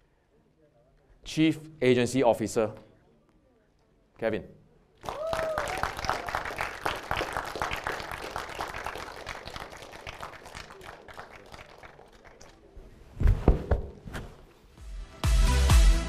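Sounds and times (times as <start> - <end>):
audience applauding: 5.0 - 12.7.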